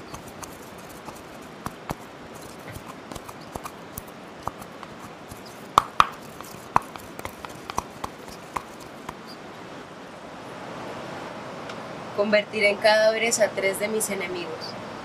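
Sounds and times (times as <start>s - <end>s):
pestle knocking in mortar: 0.0s - 9.4s.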